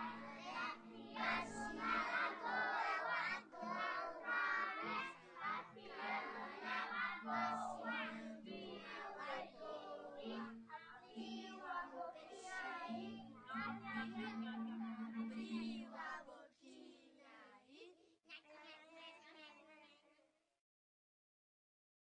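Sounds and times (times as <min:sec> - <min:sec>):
backing music: 0:00.0 - 0:11.8, 0:12.4 - 0:15.3
children singing together: 0:00.0 - 0:17.5.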